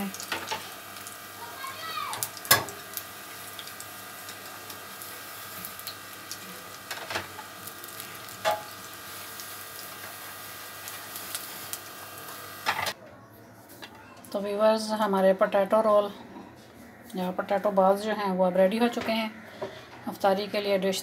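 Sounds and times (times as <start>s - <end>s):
food deep-frying in oil: 0.0s - 13.0s.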